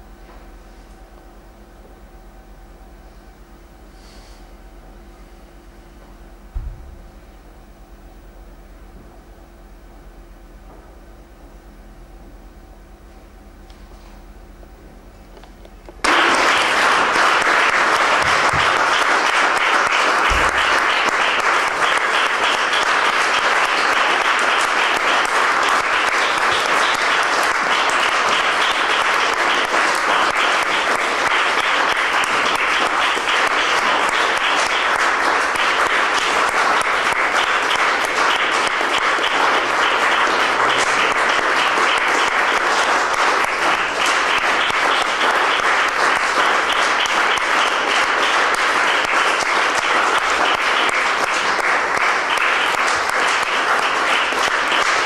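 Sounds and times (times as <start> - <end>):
audience applauding: 15.3 - 55.0
person clapping close by: 15.4 - 55.0.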